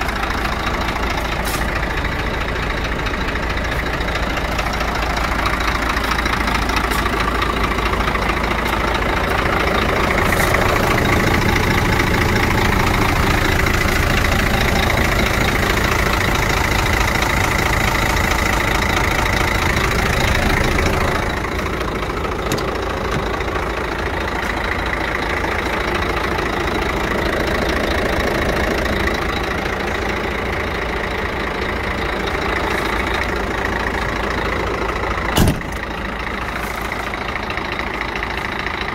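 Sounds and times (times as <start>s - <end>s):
truck diesel engine idling: 0.0s - 38.9s.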